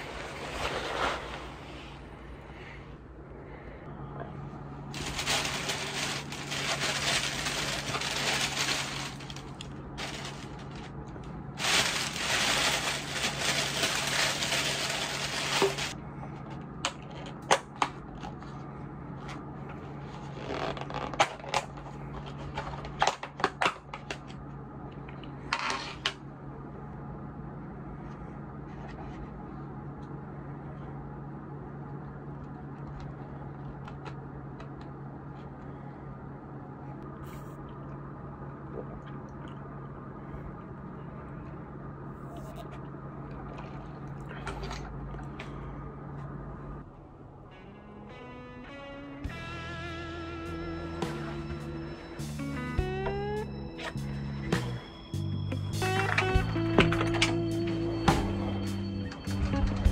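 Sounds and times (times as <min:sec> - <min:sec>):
low hum: 0:00.0 - 0:59.9
plastic rustling: 0:04.9 - 0:16.0.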